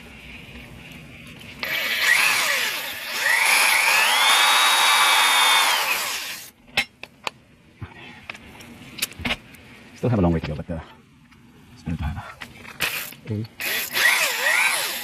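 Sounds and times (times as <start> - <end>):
drill whining: 1.6 - 6.5, 12.8 - 15.0.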